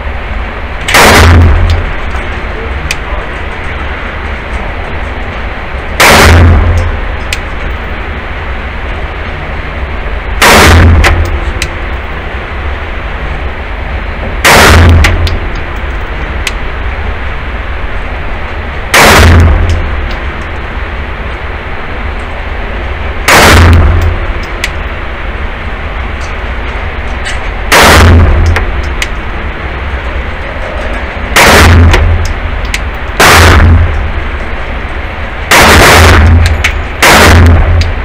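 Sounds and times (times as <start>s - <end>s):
echoing pistol shots: 0.9s - 2.1s, 6.0s - 7.5s, 10.4s - 11.9s, 14.4s - 15.6s, 18.9s - 20.2s, 23.3s - 24.8s, 27.7s - 29.0s, 31.4s - 34.3s, 35.5s - 38.0s.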